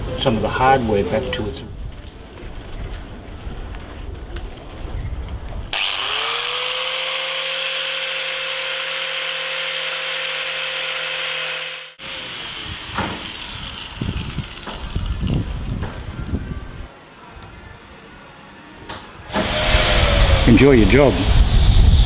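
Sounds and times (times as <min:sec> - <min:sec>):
power tool motor running: 0:05.8 - 0:16.3.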